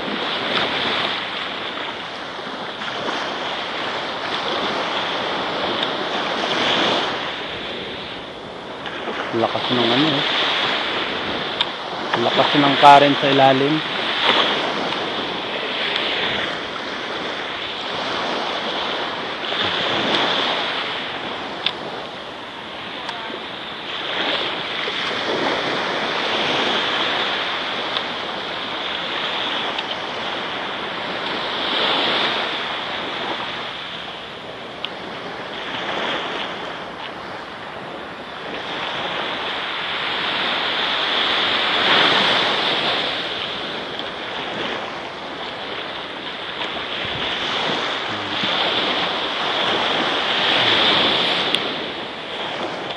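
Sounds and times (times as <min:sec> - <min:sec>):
small waves breaking on sand: 0:00.0 - 0:52.9.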